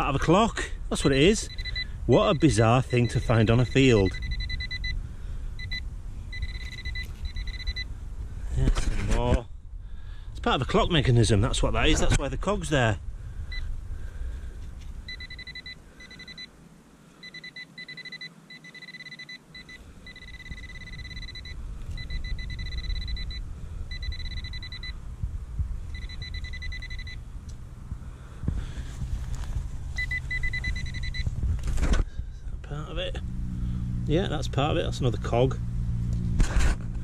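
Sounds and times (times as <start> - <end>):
metal detector high-pitched tone: 1.4 - 5.0, 5.6 - 7.9, 15.1 - 16.5, 17.2 - 25.0, 25.9 - 27.2, 30.0 - 31.3
low rumble: 20.0 - 37.0.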